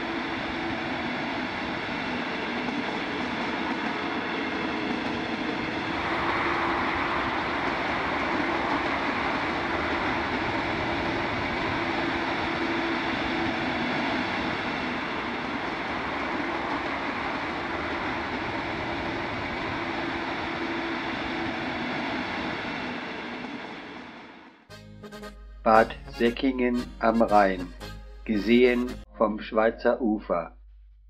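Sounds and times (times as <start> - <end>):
train rolling past on rails: 0.0 - 24.7.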